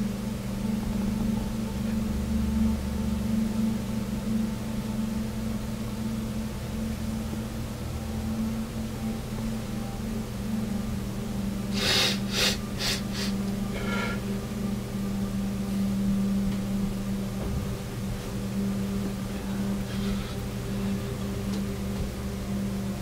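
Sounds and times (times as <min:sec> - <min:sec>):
steady low hum: 0:00.0 - 0:23.0
man breathing forcefully: 0:11.7 - 0:14.3.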